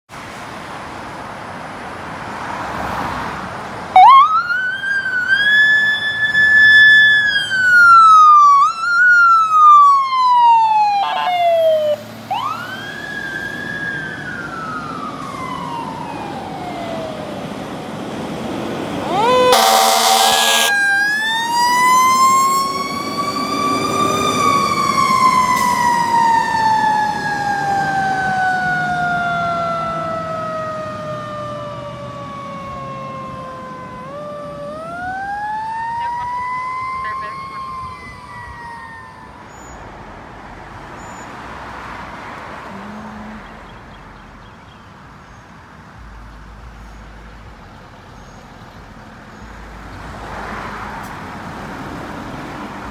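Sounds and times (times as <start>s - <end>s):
fire truck siren wailing: 3.9s - 18.1s, 18.7s - 39.8s
air horn blast: 19.3s - 20.8s.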